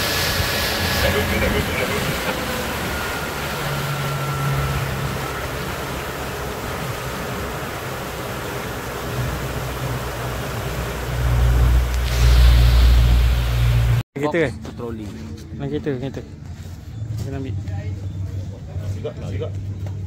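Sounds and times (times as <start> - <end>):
boat engine humming: 0.0 - 14.0
water and wind rushing along hull: 0.0 - 14.0.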